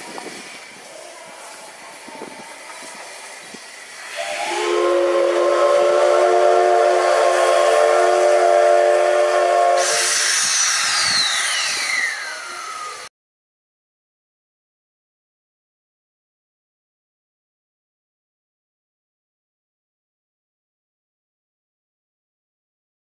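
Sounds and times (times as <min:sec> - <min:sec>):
loud hiss of steam: 0:00.0 - 0:13.1
steam whistle chord: 0:04.0 - 0:13.0.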